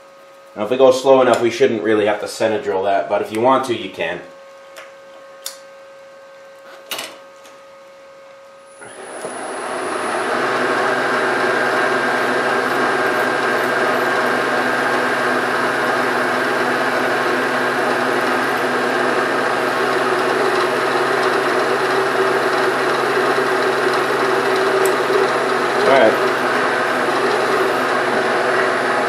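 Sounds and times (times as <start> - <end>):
drill bit drilling metal: 8.7 - 29.0
machine spindle spinning: 8.7 - 29.0.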